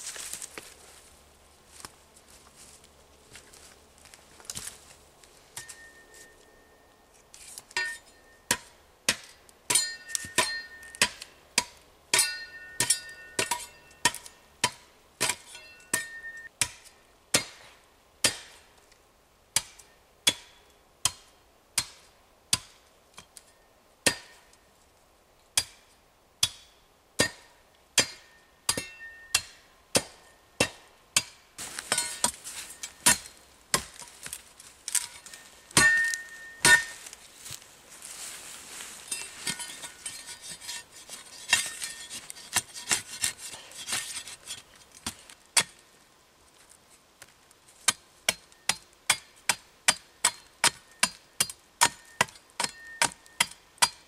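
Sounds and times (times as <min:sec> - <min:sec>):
metallic ring: 0:05.6 - 0:06.9, 0:07.8 - 0:08.5, 0:09.8 - 0:11.0, 0:12.2 - 0:14.0, 0:15.5 - 0:16.5, 0:35.1 - 0:37.0
spade chopping into wood: 0:07.7 - 0:18.6, 0:24.0 - 0:24.4, 0:26.4 - 0:37.0, 0:39.2 - 0:45.8, 0:47.9 - 0:54.0.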